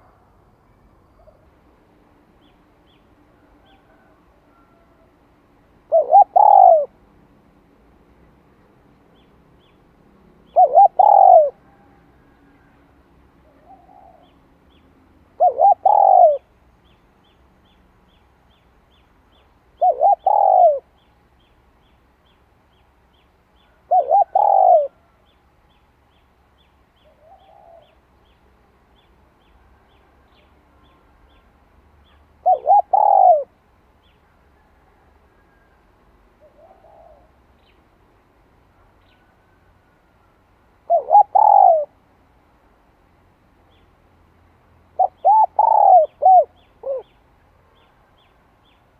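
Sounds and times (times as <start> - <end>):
dove cooing: 5.9 - 7.0, 10.4 - 12.8, 13.4 - 14.4, 15.4 - 16.5, 19.8 - 21.0, 23.7 - 25.1, 27.1 - 28.0, 32.4 - 33.6, 36.4 - 37.4, 40.8 - 42.0, 45.0 - 47.1.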